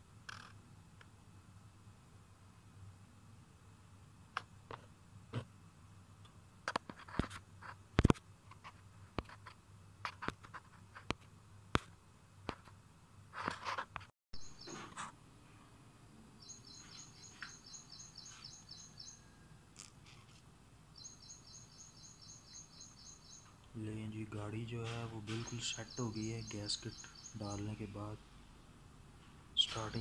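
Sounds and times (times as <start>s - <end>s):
bird trilling: 16.4s - 19.3s, 21.0s - 23.5s, 25.3s - 27.8s
sharp clicks and knocks: 24.8s - 25.8s.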